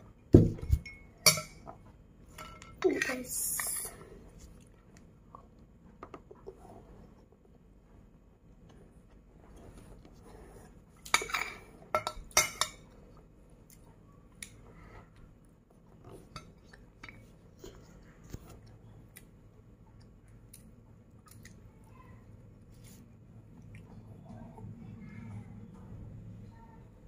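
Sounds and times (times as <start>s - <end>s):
metal spoon clinking on dish: 0.7s - 1.7s, 11.1s - 12.8s.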